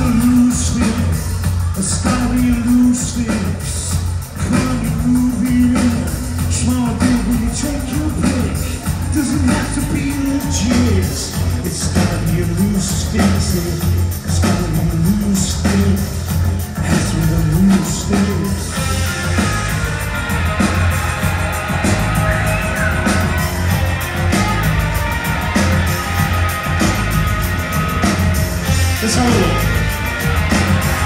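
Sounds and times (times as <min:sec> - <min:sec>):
person singing: 0:00.0 - 0:19.4
live rock band playing: 0:00.0 - 0:31.0.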